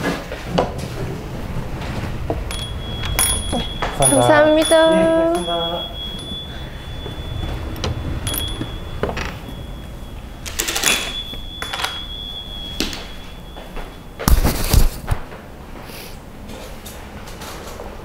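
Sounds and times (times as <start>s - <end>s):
faint high whine: 0.5s - 14.9s
objects clicking and clinking: 10.4s - 13.2s.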